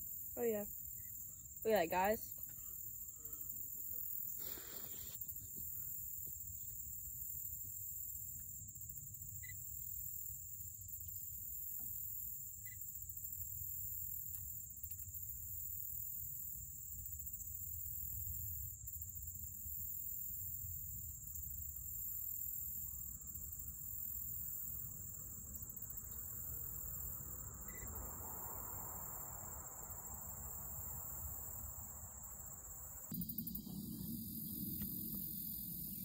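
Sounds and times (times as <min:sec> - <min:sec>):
insect chorus: 0:00.0 - 0:36.0
faint hiss: 0:00.4 - 0:06.5, 0:21.8 - 0:36.0
low rumble: 0:33.1 - 0:36.0.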